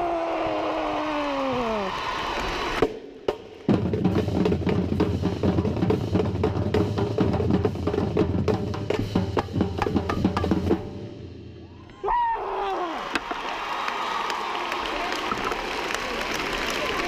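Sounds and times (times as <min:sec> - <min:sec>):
tenor drums: 0:02.8 - 0:11.6.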